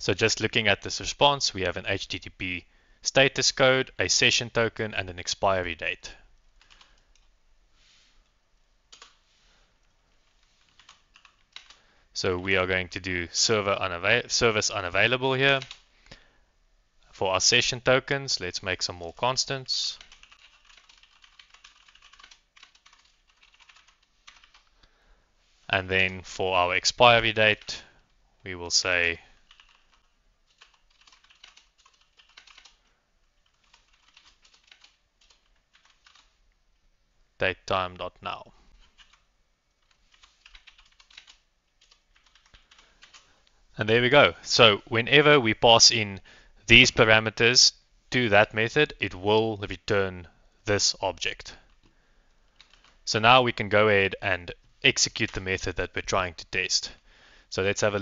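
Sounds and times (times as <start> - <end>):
faint keyboard typing: 5.9 - 7.4, 8.2 - 12.5, 15.4 - 16.3, 19.0 - 25.0, 28.8 - 36.9, 38.3 - 43.6, 51.1 - 53.1.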